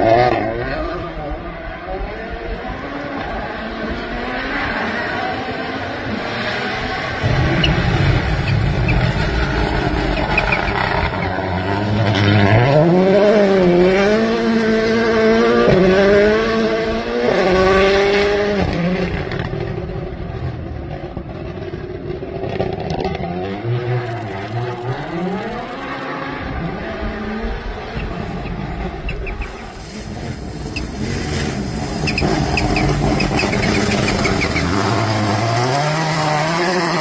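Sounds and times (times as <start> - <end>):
rally car engine revving: 0.0 - 37.0.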